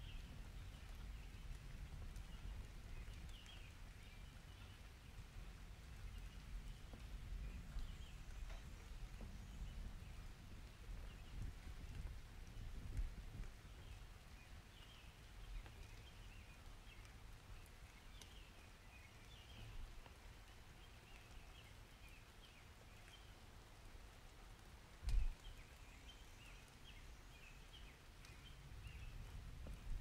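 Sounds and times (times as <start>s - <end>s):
rain hiss: 0.0s - 30.0s.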